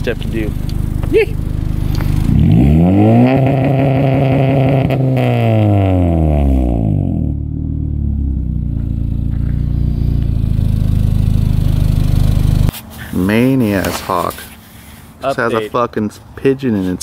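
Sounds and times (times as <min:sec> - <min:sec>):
car engine revving on limiter: 0:00.7 - 0:08.6.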